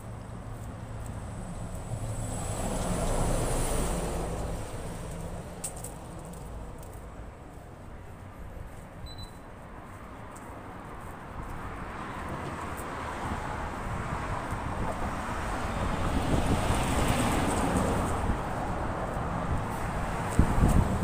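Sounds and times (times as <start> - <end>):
vehicle passing: 0.0 - 7.0
street traffic noise: 0.0 - 21.0.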